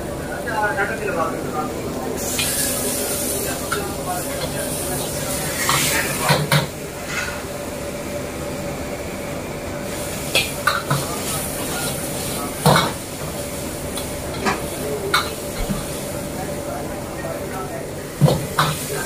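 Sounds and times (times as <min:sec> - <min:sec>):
gas burner noise: 0:00.0 - 0:19.0
metal ladle scraping a wok: 0:07.0 - 0:07.4.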